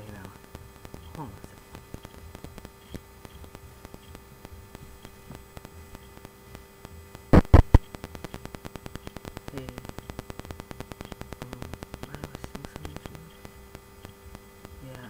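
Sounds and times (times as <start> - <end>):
phone interference buzz: 0.0 - 15.0.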